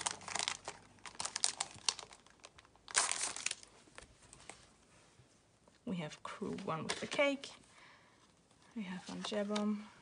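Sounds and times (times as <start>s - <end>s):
plastic sleeve crinkling: 0.0s - 4.7s.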